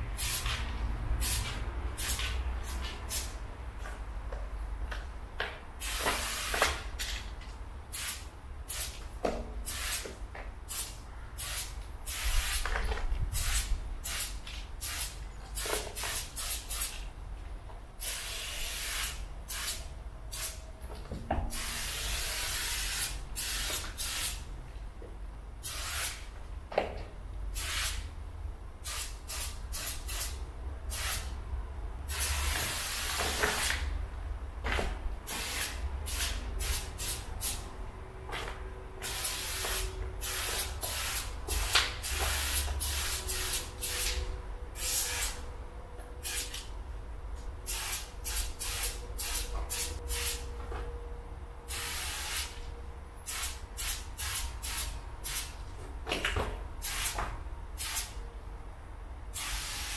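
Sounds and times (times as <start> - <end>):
steady low rumble: 0.0 - 5.8
spray paint can hissing: 0.2 - 3.4, 5.8 - 6.9, 7.9 - 17.0, 18.0 - 20.7, 21.5 - 24.5, 25.6 - 26.3, 27.5 - 28.1, 28.8 - 31.4, 32.1 - 33.9, 35.3 - 37.6, 39.0 - 44.2, 44.8 - 45.4, 46.2 - 46.7, 47.6 - 50.5, 51.7 - 52.6, 53.2 - 55.6, 56.8 - 58.2, 59.4 - 59.9.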